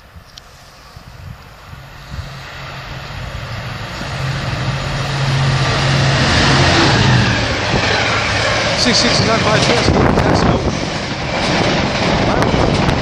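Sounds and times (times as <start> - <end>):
diesel locomotive engine: 0.0 - 13.0
rail noise: 0.0 - 13.0.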